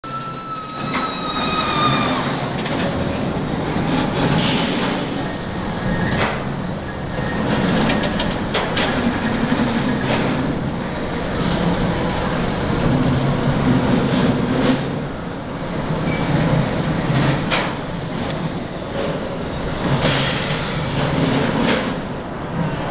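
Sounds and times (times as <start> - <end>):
high falling squeal: 0.0 - 3.2
roller coaster cars rumbling: 0.0 - 22.9
clacks and clatters: 7.2 - 10.6, 16.0 - 22.0.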